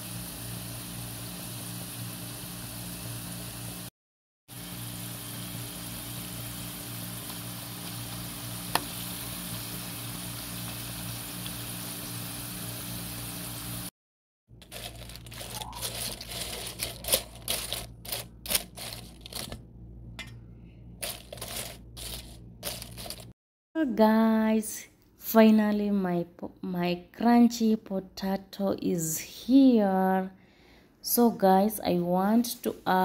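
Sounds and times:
potato slices sizzling in oil: 0.0s - 3.9s, 4.5s - 13.9s
crisps rattling in metal colander: 14.6s - 19.6s, 21.0s - 23.4s.

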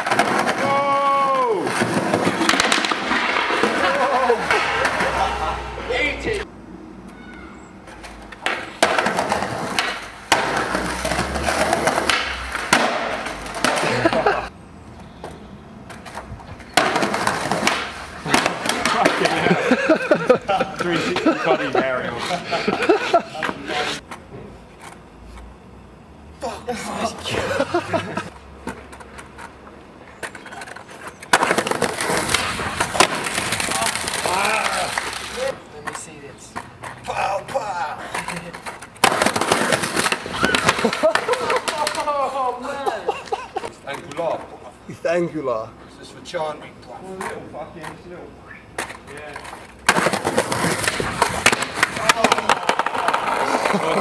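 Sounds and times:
skateboard clacking on ground: 0.0s - 5.3s, 7.1s - 14.4s, 15.2s - 25.0s, 28.0s - 42.4s, 47.0s - 54.0s
skateboard wheels rolling on concrete: 0.0s - 54.0s.

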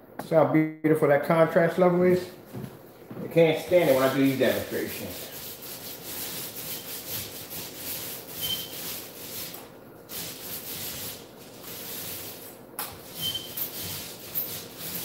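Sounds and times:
paint roller rasping on wall: 3.6s - 15.0s.

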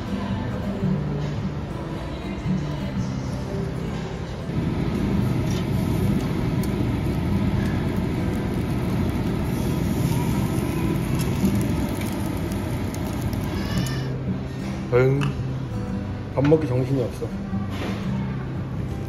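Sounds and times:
grill exhaust roaring: 4.3s - 15.1s
meat crackling on grill: 4.5s - 14.2s.

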